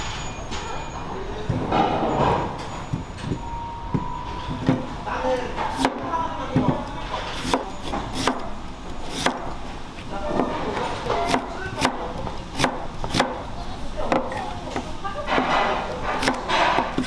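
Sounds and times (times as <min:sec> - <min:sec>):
knife slicing radish: 0:07.4 - 0:09.5, 0:10.8 - 0:13.4.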